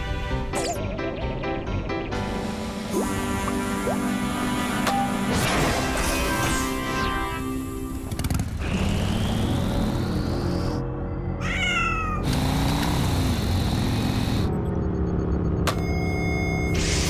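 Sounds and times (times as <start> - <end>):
music with electronic whine: 2.2 - 11.1
cartoon cat high cries: 11.4 - 12.2.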